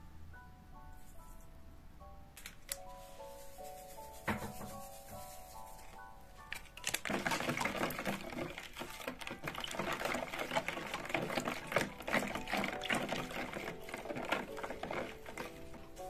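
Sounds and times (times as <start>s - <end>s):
whisk beating liquid in bowl: 6.8s - 16.0s.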